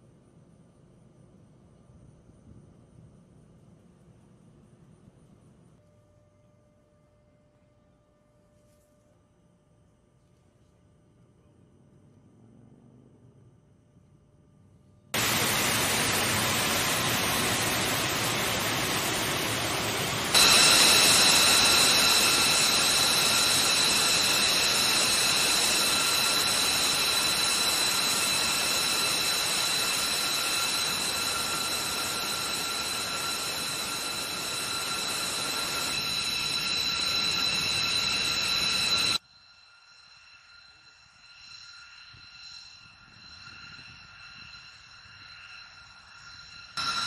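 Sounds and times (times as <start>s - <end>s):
jet engine rush: 15.2s - 39.2s, 39.9s - 47.0s
high turbine whine: 15.2s - 47.0s.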